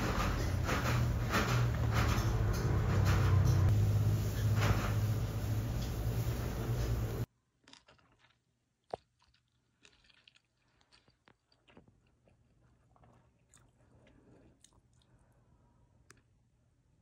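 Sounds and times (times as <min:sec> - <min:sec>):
person chewing food: 0:07.4 - 0:16.6.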